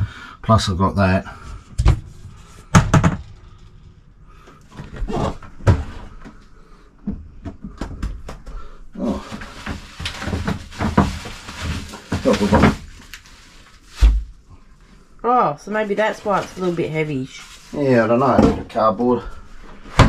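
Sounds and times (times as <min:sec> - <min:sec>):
cardboard rustling and scraping: 0:09.0 - 0:14.4, 0:16.0 - 0:18.5.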